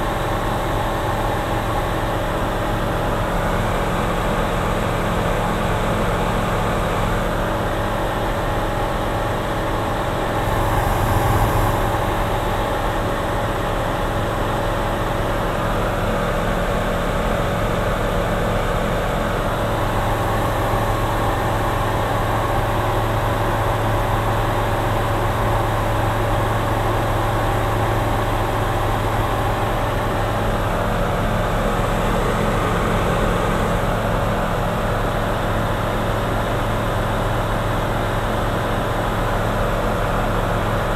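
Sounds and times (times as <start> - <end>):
light aircraft engine drone: 0.0 - 40.9.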